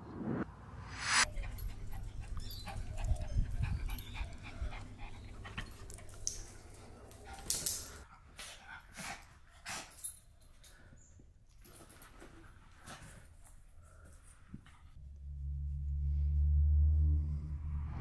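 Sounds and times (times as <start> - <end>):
low rumble: 0.0 - 2.3, 15.0 - 18.0
small dogs breathing: 1.3 - 11.2.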